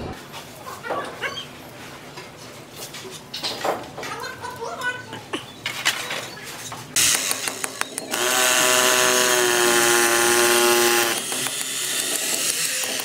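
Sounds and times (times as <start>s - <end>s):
rotary hammer drill boring into brick: 7.0s - 13.0s.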